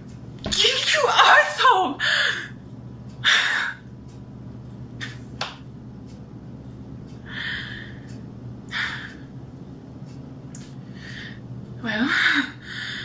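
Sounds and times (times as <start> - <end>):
low hum: 0.0 - 13.0.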